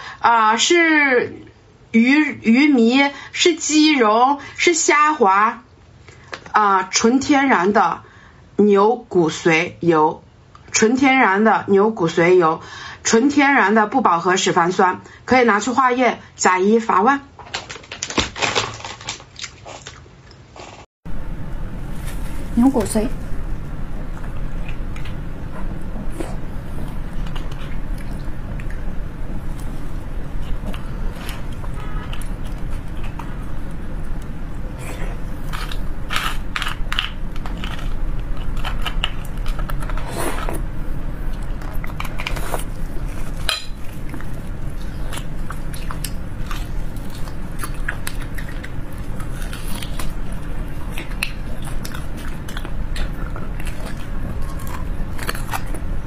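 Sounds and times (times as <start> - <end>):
steady low hum: 21.1 - 56.0
wet chewing and squishing: 24.0 - 34.3, 41.3 - 56.0.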